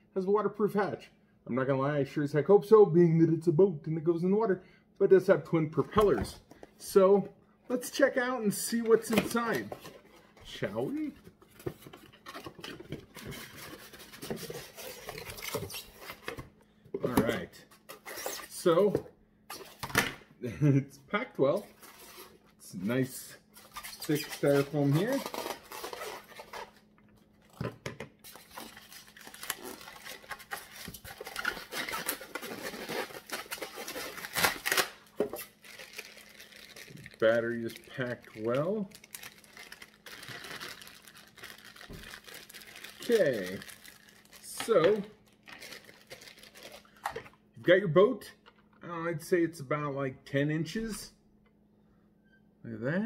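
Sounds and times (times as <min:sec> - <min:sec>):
plastic bag crinkling: 0:23.6 - 0:26.8, 0:28.2 - 0:47.3.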